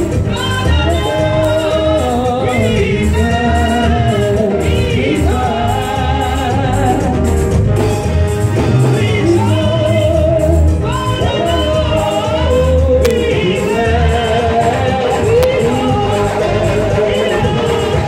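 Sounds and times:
gospel singing: 0:00.0 - 0:18.0.

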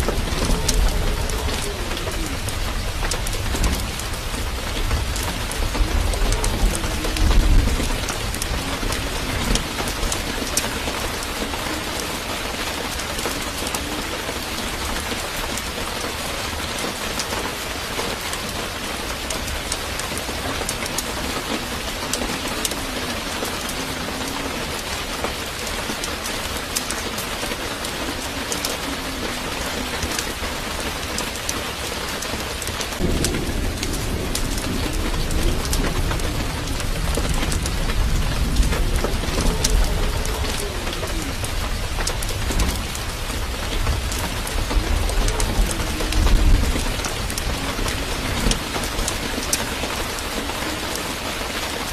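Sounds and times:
steady rain: 0:00.0 - 0:51.9
low rumble: 0:33.0 - 0:50.0.

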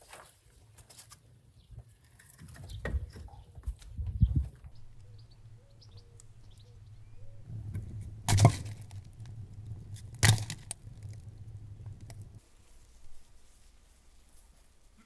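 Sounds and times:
logs dropped with wooden knock: 0:07.6 - 0:09.3, 0:09.9 - 0:11.3.

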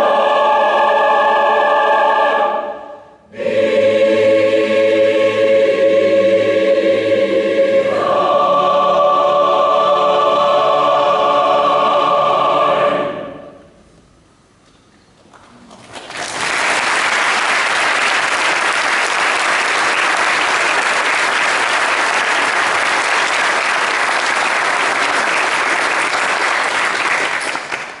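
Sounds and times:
audience applauding: 0:15.7 - 0:28.0.

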